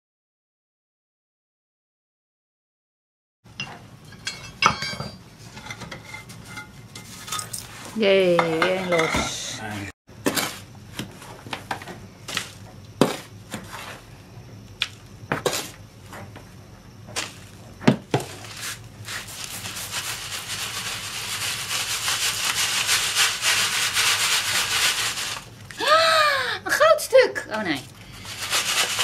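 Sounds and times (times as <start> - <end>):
brush and scraper working sand: 12.3 - 14.1, 18.2 - 25.5, 28.1 - 29.0
sand rasping through sieve mesh: 12.3 - 14.1, 18.2 - 25.5, 28.1 - 29.0.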